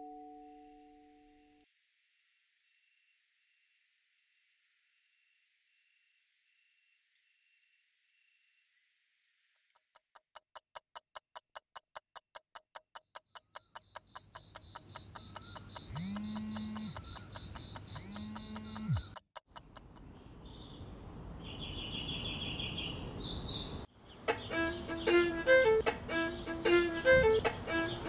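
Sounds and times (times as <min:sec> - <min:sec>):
clock ticking fast: 0:10.0 - 0:20.2
bird chirps: 0:13.1 - 0:25.4.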